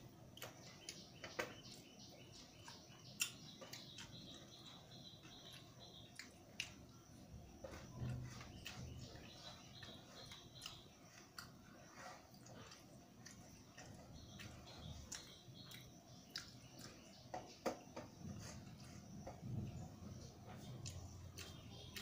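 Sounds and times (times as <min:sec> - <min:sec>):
quiet chewing: 0:00.1 - 0:22.0.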